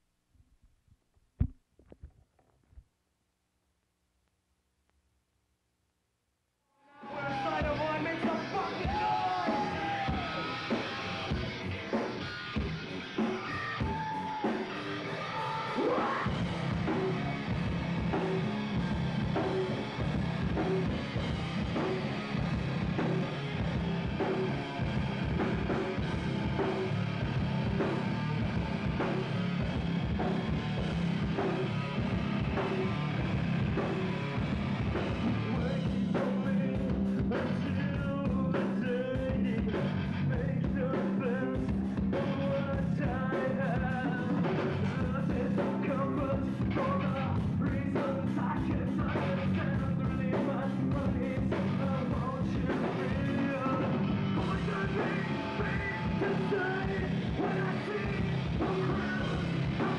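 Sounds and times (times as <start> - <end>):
person singing: 6.9 - 12.1, 13.4 - 17.2, 35.2 - 59.9
rock band playing live: 7.0 - 59.9.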